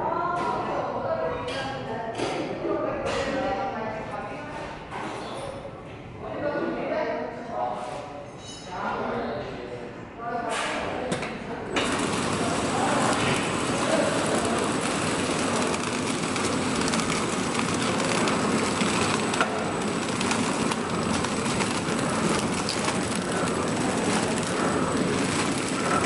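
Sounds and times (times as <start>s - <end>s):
wrapping machine clattering: 11.8s - 26.0s.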